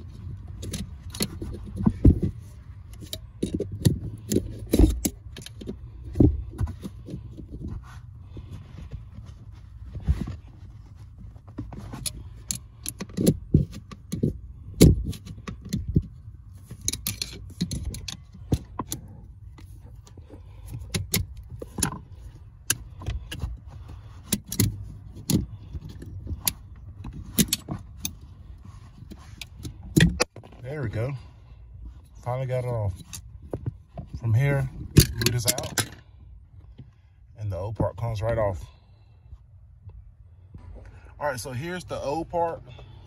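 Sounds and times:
metal tool clicking and scraping: 0:11.8 - 0:23.5.

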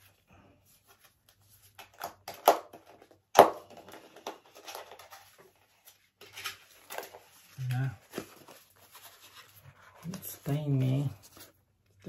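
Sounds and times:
packaging rustling and crinkling: 0:03.8 - 0:12.0.

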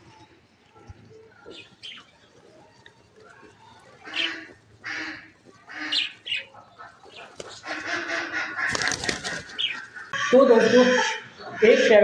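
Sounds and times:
ducks quacking: 0:03.4 - 0:12.0
pigeon wings flapping: 0:08.6 - 0:09.7.

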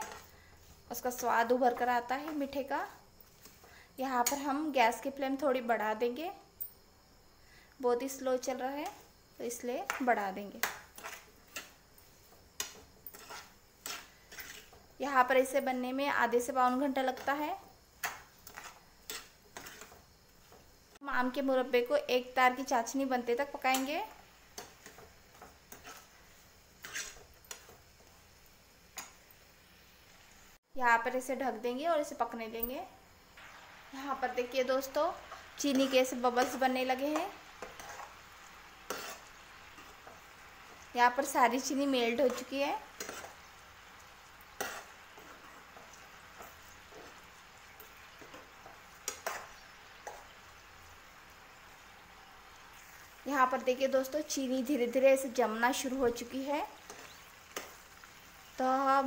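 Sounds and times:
metal spoon scraping a pan: 0:00.0 - 0:02.6, 0:03.2 - 0:04.7, 0:09.8 - 0:15.8, 0:16.4 - 0:20.7, 0:23.6 - 0:28.3, 0:34.1 - 0:50.6, 0:55.9 - 0:58.6
syrup bubbling in a pan: 0:10.6 - 0:15.3, 0:16.3 - 0:21.0, 0:22.5 - 0:30.7, 0:33.0 - 0:59.0.

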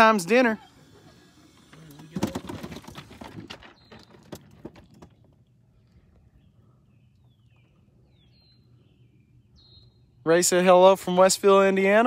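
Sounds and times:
bird chirps: 0:03.6 - 0:04.5, 0:05.1 - 0:10.3.

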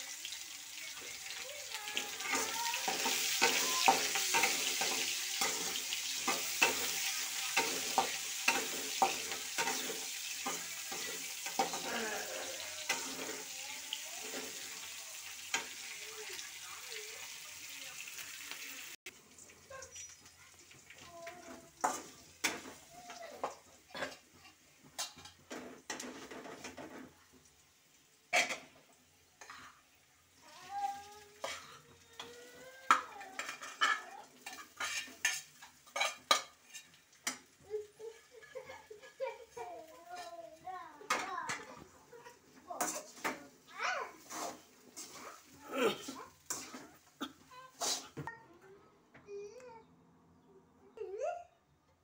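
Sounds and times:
food sizzling in hot oil: 0:00.0 - 0:48.3
spatula scraping and knocking pan: 0:01.7 - 0:16.5, 0:31.4 - 0:40.4, 0:41.0 - 0:48.3.

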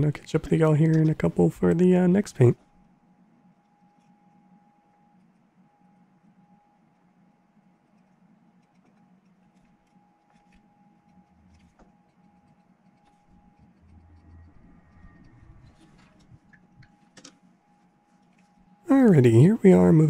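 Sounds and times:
low steady hum: 0:00.0 - 0:20.0
thin steady whine: 0:00.0 - 0:20.0.

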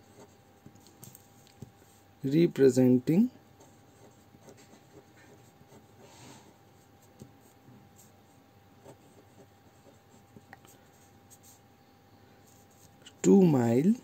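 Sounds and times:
pen scratching on paper: 0:00.1 - 0:00.9, 0:03.6 - 0:08.2, 0:08.8 - 0:11.6.

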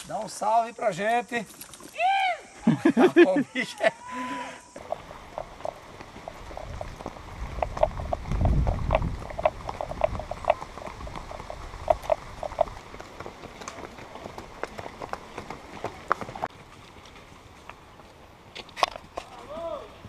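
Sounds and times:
horse hooves on dirt: 0:04.8 - 0:20.0.

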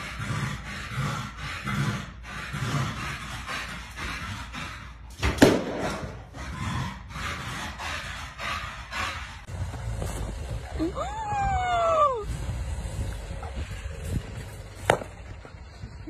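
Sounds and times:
dog rasping rhythmically: 0:00.0 - 0:09.8.

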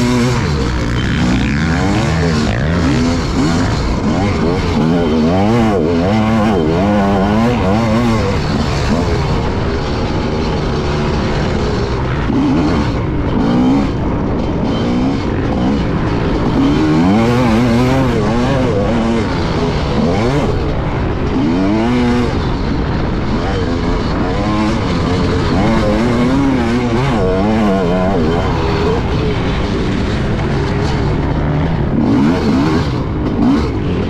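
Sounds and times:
dirt bike engine revving: 0:00.0 - 0:34.0.

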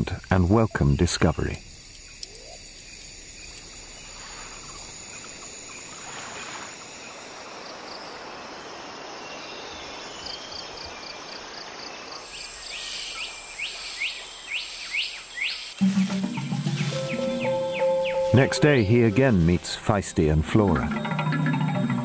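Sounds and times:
insects hissing: 0:00.0 - 0:20.5
high sustained insect tones: 0:00.0 - 0:22.0
bird calling in downward notes: 0:15.8 - 0:19.2.

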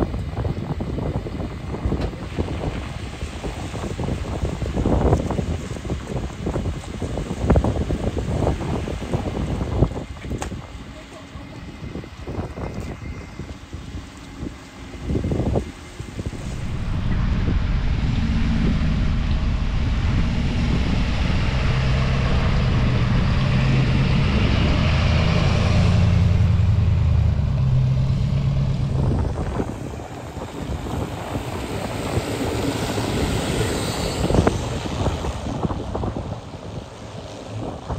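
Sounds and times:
engine low drone: 0:00.0 - 0:37.9
wind on microphone: 0:00.0 - 0:37.9
tyres hissing on wet road: 0:28.1 - 0:35.6.

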